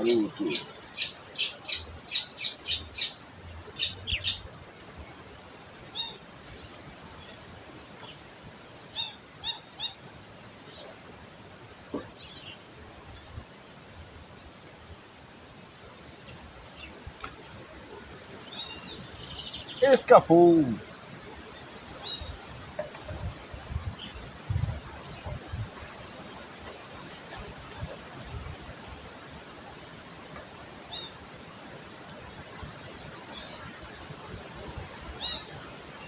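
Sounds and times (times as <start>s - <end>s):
bird chirping: 0.0s - 4.5s, 18.4s - 20.8s
outdoor background noise: 0.0s - 36.0s.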